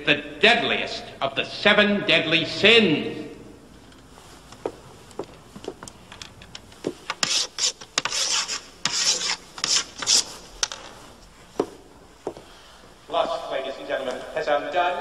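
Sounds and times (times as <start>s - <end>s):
footsteps: 3.7s - 8.2s, 8.9s - 14.4s
chalk scratching on blackboard: 7.2s - 10.5s.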